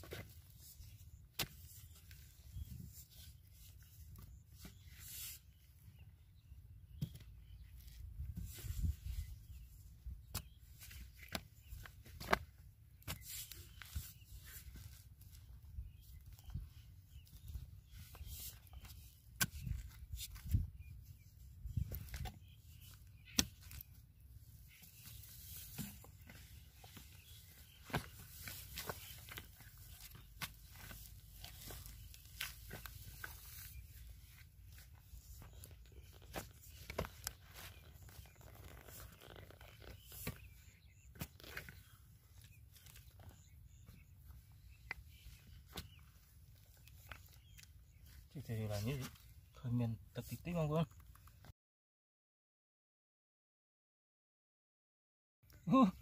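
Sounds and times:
dry mud clods crunching: 7.0 - 51.3.

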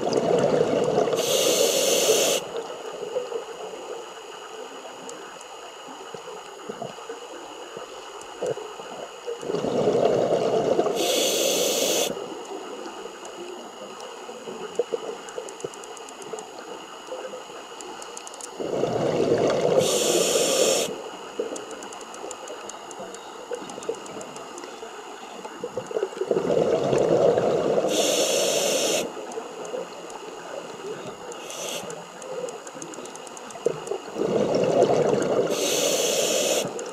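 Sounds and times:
exhaled bubbles gurgling: 0.0 - 2.7, 9.3 - 12.2, 18.5 - 21.5, 25.6 - 32.5, 33.5 - 36.9
regulator hiss: 1.0 - 3.1, 10.8 - 13.2, 18.5 - 21.5, 27.6 - 33.6, 34.4 - 36.9.

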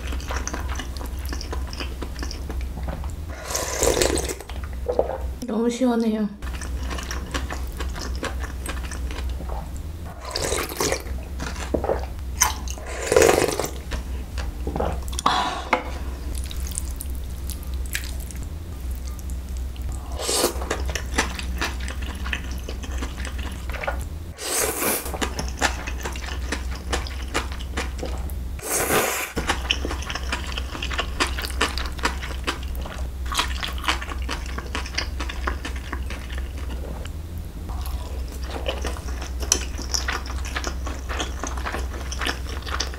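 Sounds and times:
chewing: 0.0 - 3.0, 6.4 - 9.8, 25.1 - 28.3, 29.4 - 37.1, 37.7 - 42.9
low hum: 0.0 - 24.4, 25.1 - 28.7, 29.4 - 42.7
person slurping noodles: 3.3 - 4.4, 20.0 - 20.6, 24.4 - 25.2, 28.6 - 29.4.

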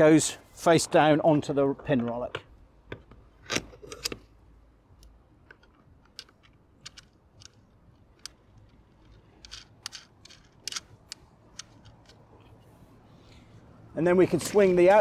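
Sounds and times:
plastic and metal clicks: 5.0 - 12.3.

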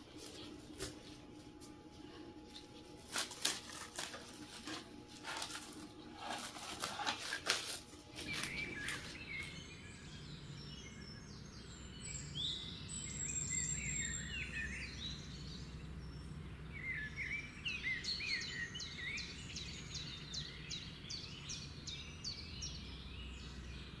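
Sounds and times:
plastic cling film crackling: 0.0 - 9.5
outdoor background noise: 0.0 - 24.0
small birds chirping: 0.0 - 24.0.

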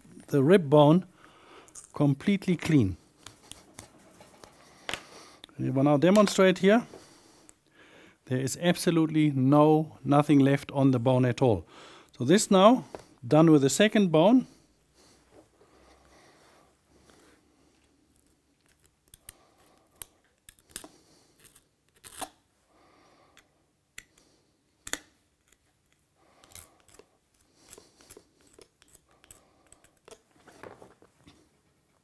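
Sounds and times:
knife scraping along bones: 26.4 - 30.2.

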